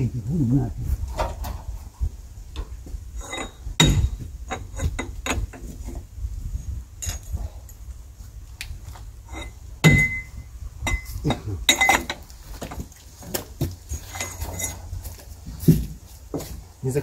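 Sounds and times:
metal clinks and knocks: 2.6 - 6.1, 6.9 - 8.0, 9.2 - 16.5
sharp ringing metal clink: 9.3 - 12.1.

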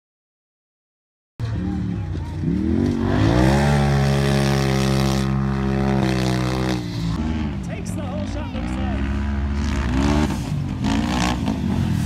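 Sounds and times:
engine revving: 1.4 - 12.0.

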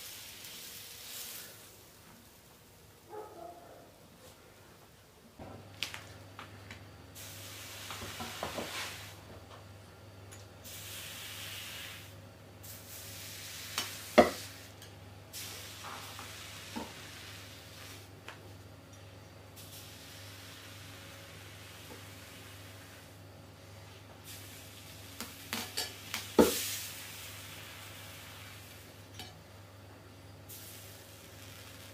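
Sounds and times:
hot blade sizzling: 0.0 - 2.0, 10.6 - 18.1, 19.6 - 23.2, 24.2 - 29.3, 30.5 - 31.9.

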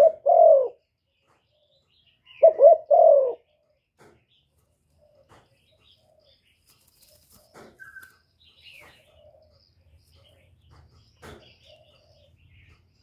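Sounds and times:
dove cooing: 0.0 - 0.9, 1.5 - 3.6, 8.6 - 12.9
knocks and rustles: 6.7 - 8.0, 10.6 - 11.8.

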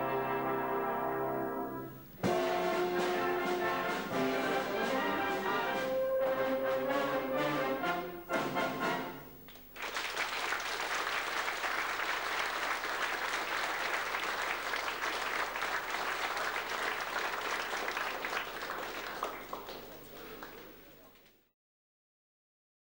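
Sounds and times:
brass band playing: 0.0 - 9.5
audience applause: 2.2 - 7.4, 9.5 - 21.4.

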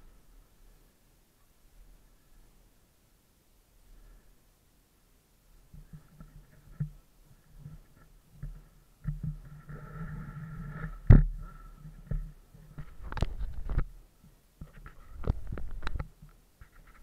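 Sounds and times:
taps and scrapes: 5.7 - 13.9, 14.6 - 17.0.

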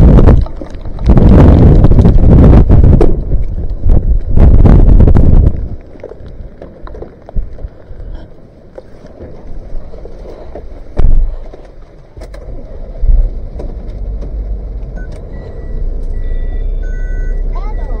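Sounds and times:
van engine rumbling: 0.0 - 18.0
wind and rain: 0.0 - 18.0
short electronic beeps: 15.0 - 18.0.

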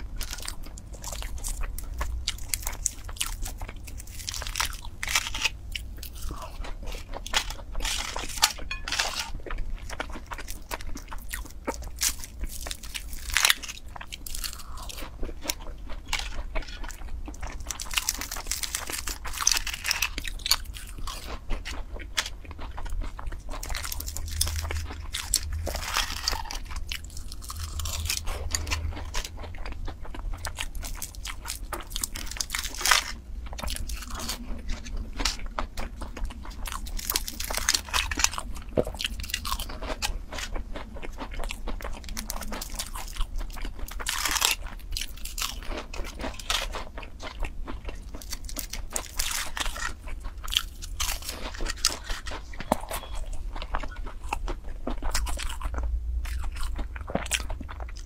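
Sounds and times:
crunching and chewing pastry: 0.0 - 58.0.

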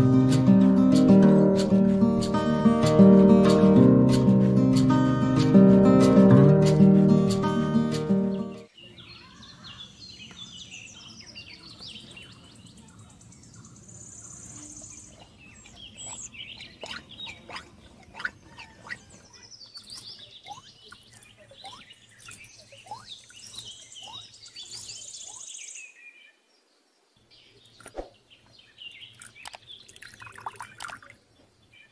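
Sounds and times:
birds chirping: 0.0 - 31.9
high bird trill: 14.2 - 25.8.

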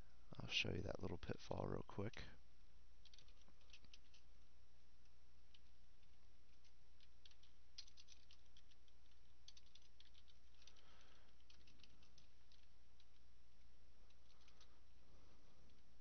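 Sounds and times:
steady low hum: 0.0 - 16.0
keyboard typing: 5.5 - 13.2.

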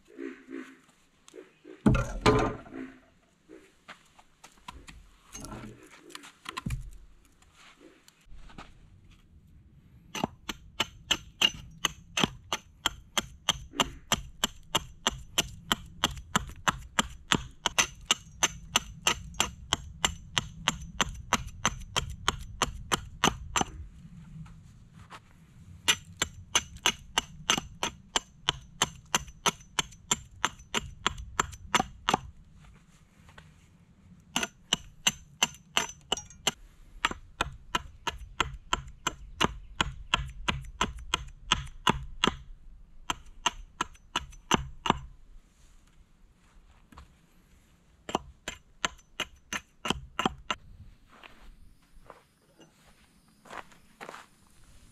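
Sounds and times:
hatchet chopping wood: 10.2 - 23.8, 25.9 - 32.3, 34.4 - 45.1, 48.1 - 50.6.

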